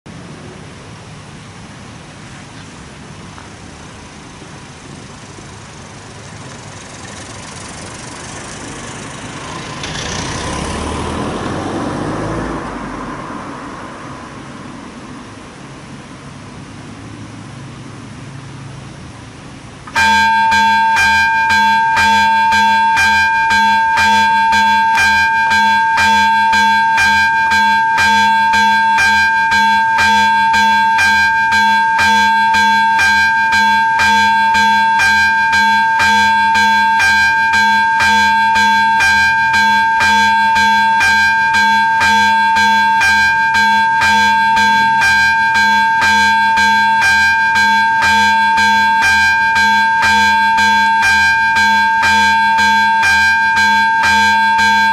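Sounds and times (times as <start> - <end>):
level crossing bell dinging: 19.9 - 54.9
steady ringing tone: 19.9 - 54.9.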